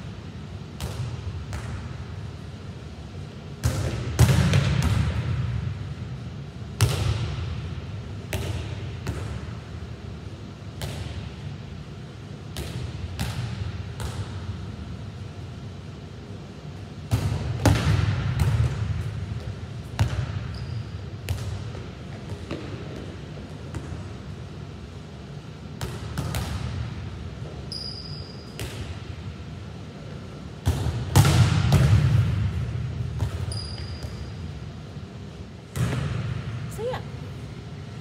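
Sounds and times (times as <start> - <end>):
steady low hum: 0.0 - 38.0
volleyball smacks and thuds: 3.6 - 5.6, 6.8 - 7.4, 8.3 - 9.4, 17.1 - 19.3, 25.8 - 26.9, 30.6 - 34.2, 35.7 - 36.5.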